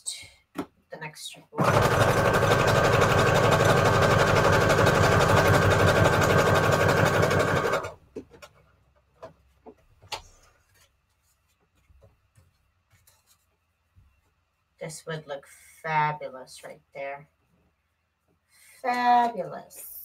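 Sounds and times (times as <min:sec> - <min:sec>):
electric sewing machine running: 0:01.6 - 0:08.0.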